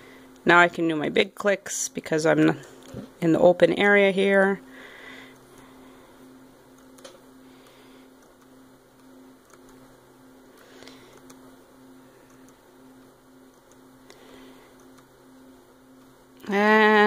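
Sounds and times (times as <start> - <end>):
low room hum: 0.0 - 17.0
computer mouse clicks: 8.2 - 9.8, 11.1 - 11.4, 13.5 - 13.8, 14.8 - 15.1.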